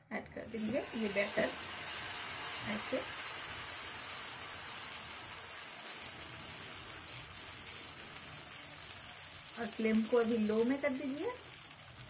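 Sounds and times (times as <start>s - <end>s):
batter sizzling in butter: 0.4s - 12.0s.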